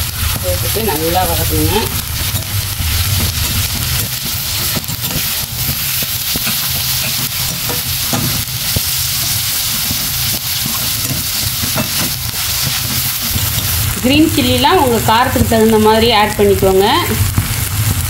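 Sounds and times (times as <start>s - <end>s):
steady low hum: 0.0s - 17.4s
onions sizzling in hot oil: 0.0s - 18.0s
spatula scraping pan: 0.6s - 14.0s.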